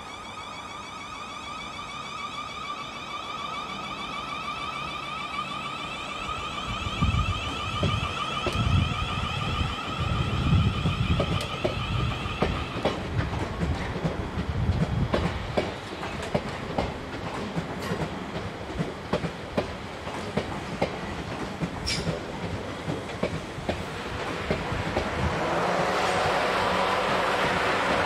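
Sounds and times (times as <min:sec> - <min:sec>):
electric train passing: 0:00.0 - 0:28.0
sharp wheel squeak: 0:21.8 - 0:22.1.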